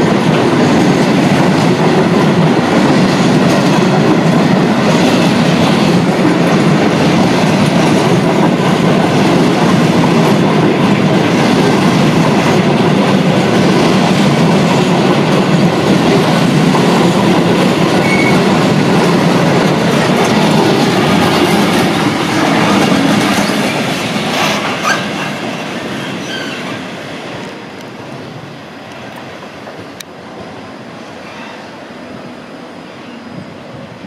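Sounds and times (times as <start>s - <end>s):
train wheels clattering over rail joints: 0.0s - 27.0s
diesel locomotive passing: 0.0s - 34.0s
train wheel squeals: 18.0s - 18.6s, 22.3s - 26.9s, 30.4s - 34.0s.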